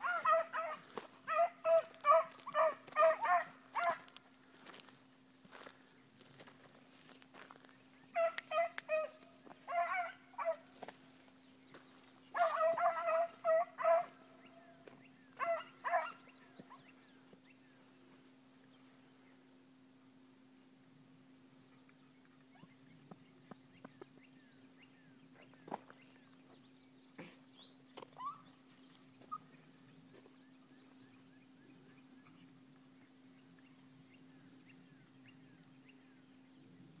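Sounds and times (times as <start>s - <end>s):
dogs baying: 0.0s - 4.2s, 8.1s - 10.9s, 12.3s - 14.6s, 15.4s - 17.0s
insect drone: 0.0s - 37.0s.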